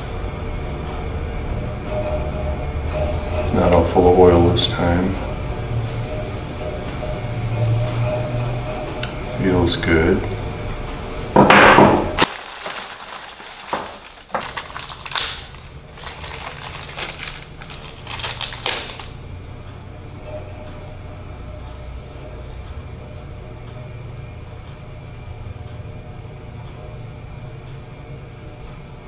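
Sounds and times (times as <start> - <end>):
steady low hum: 0.0 - 29.0
plastic bags crinkling: 12.2 - 19.2.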